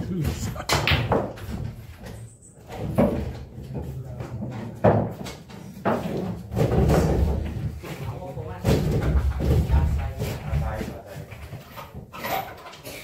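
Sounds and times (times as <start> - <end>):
pool cue and balls knocking: 0.0 - 8.0.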